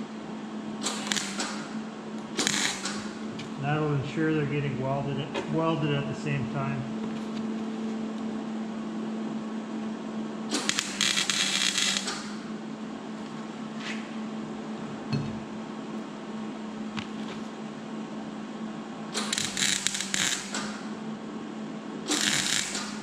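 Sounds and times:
welder arc crackling: 0.8 - 1.6, 2.2 - 3.2, 10.5 - 12.4, 19.2 - 20.8, 22.1 - 23.0.

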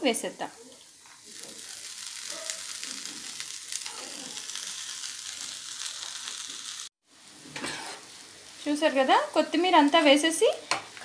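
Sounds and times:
food sizzling in oil: 0.0 - 11.0.

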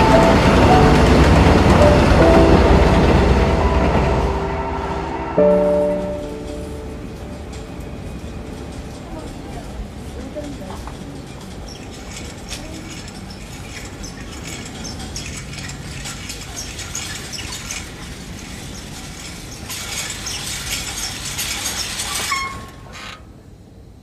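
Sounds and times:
wheelchair wheels rattling: 5.7 - 23.2
wheelchair squeak: 7.3 - 23.2.

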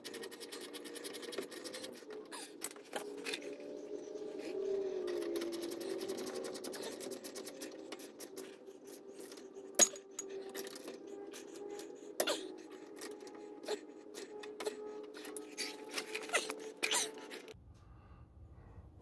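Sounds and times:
metal tools clinking: 9.2 - 11.9.

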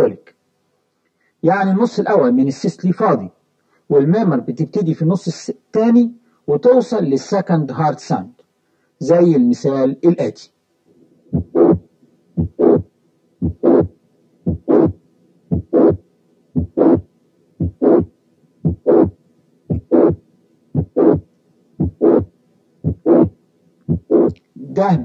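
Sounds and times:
heartbeat with systolic murmur: 11.3 - 16.0, 16.6 - 24.4.

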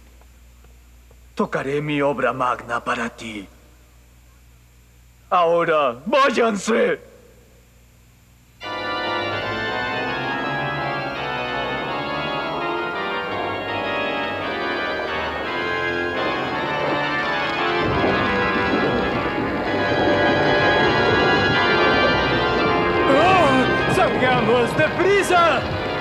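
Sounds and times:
organ playing sustained chords: 8.6 - 26.0.

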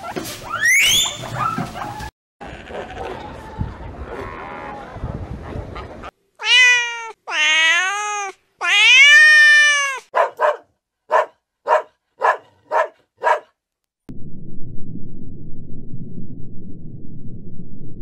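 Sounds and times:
cat meowing: 6.4 - 10.1
puppy yapping: 9.0 - 13.5
low rushing noise: 14.1 - 18.0.

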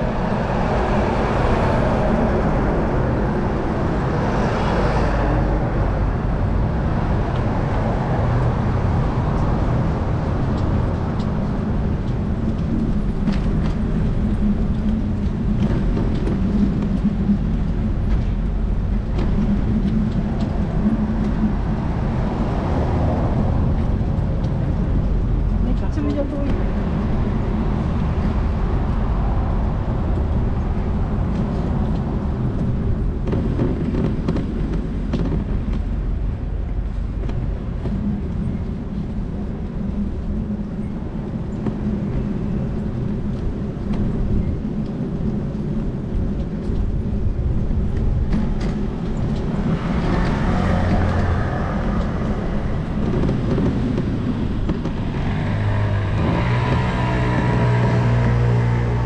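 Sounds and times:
street traffic rumble: 0.0 - 59.0
vehicle passing: 48.8 - 59.0.

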